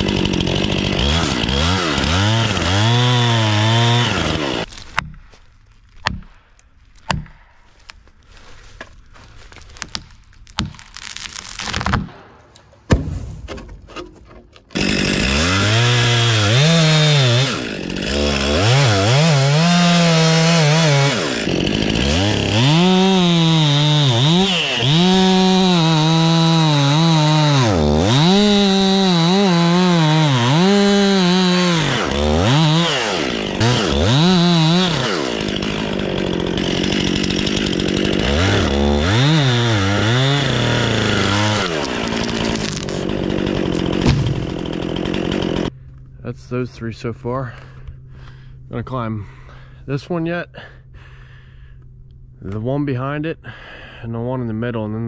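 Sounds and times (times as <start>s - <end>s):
chainsaw cutting wood: 0.0s - 5.4s, 9.8s - 45.8s
knocks and rustles: 12.6s - 14.8s.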